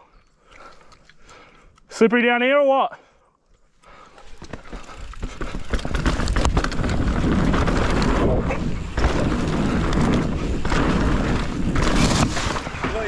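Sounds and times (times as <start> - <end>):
bike clicks and rattles: 3.7 - 13.0
bike tyres rolling over dirt: 3.9 - 13.0
wind rushing over microphone: 5.9 - 13.0.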